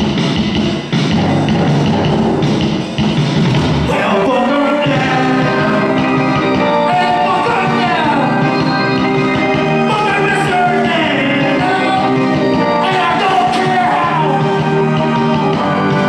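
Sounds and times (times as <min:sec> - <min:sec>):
backing music: 0:00.0 - 0:16.0
person singing: 0:03.9 - 0:08.8, 0:09.6 - 0:16.0.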